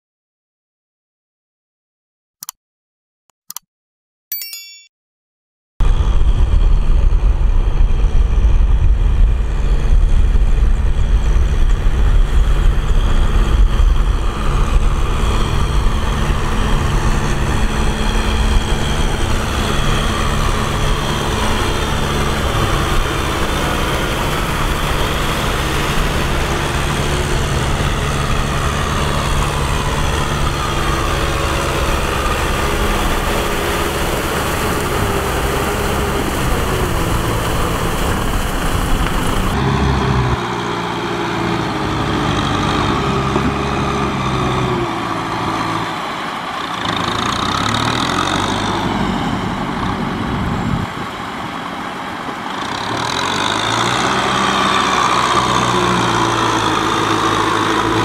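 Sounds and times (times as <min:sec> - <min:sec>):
tractor engines running under load: 0:05.9 - 0:58.0
rotary tiller churning wet mud: 0:11.0 - 0:58.0.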